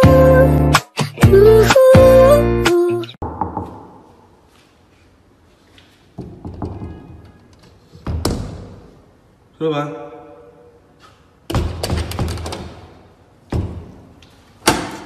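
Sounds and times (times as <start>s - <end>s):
song playing: 0.0s - 3.2s
knocks: 6.2s - 7.4s.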